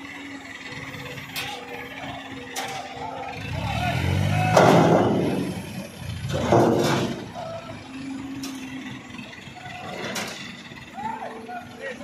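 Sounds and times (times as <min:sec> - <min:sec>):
diesel machinery humming: 0:00.0 - 0:12.0.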